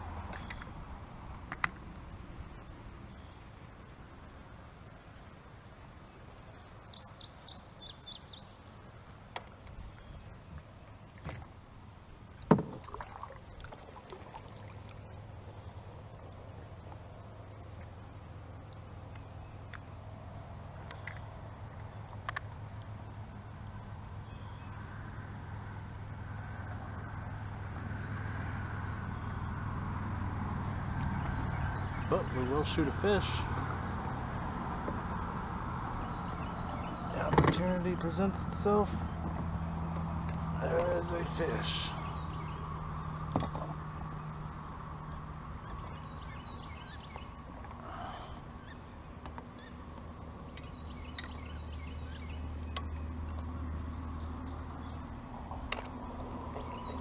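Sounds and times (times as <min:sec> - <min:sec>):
low engine hum: 0:00.0 - 0:57.0
faint bird chirping: 0:02.4 - 0:03.8, 0:06.0 - 0:09.1, 0:23.9 - 0:25.0, 0:26.4 - 0:27.5, 0:41.0 - 0:55.2, 0:56.5 - 0:57.0.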